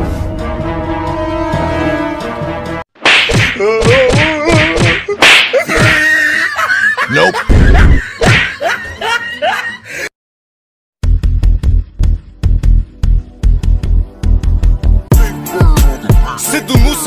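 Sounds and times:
slaps and smacks: 3.0 - 6.0, 8.2 - 8.5
electronic music with steady beat: 14.4 - 17.0.

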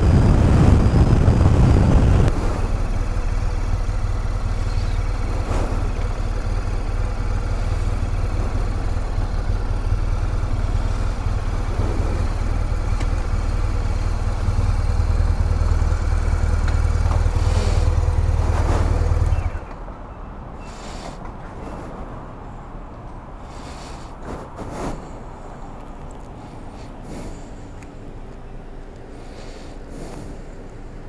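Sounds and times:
motorcycle engine idling: 0.0 - 19.9
faint clicks and handling noises: 27.8 - 29.2.

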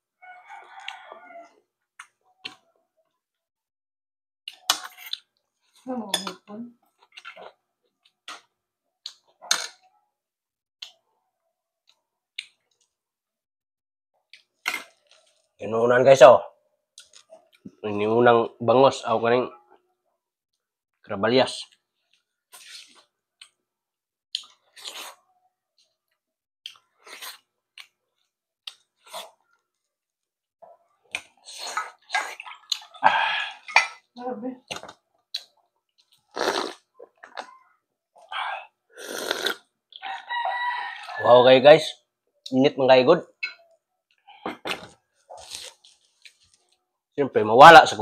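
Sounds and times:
person chewing food: 4.5 - 5.8, 6.9 - 9.6, 16.9 - 17.7, 24.3 - 34.1, 34.7 - 40.2, 43.4 - 46.8.

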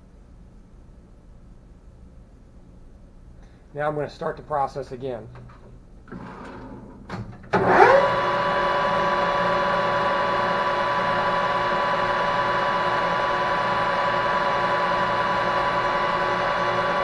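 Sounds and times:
metal lathe running: 7.6 - 17.0.

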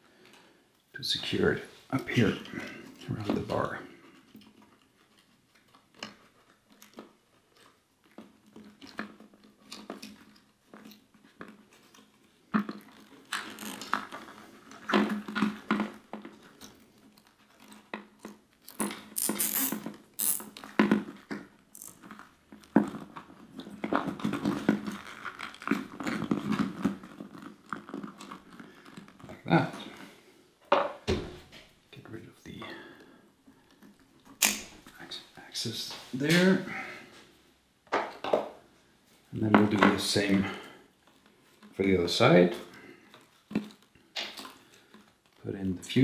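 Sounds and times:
hands handling plastic parts: 37.2 - 46.0.

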